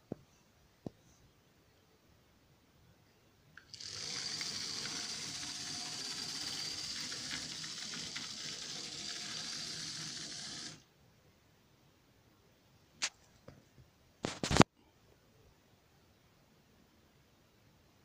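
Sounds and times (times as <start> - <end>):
model train motor whine: 3.6 - 10.8
rattle of wheels and gears: 3.7 - 10.8.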